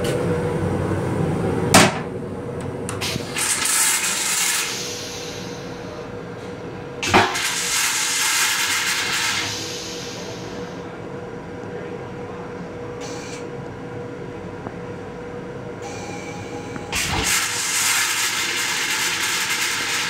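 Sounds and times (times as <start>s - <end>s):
train running hum and rumble: 0.0s - 20.0s
toilet seat clunk: 1.7s - 2.1s
loud clunk: 1.7s - 2.2s
toilet flushing: 3.0s - 5.8s, 7.0s - 10.7s, 16.9s - 20.0s.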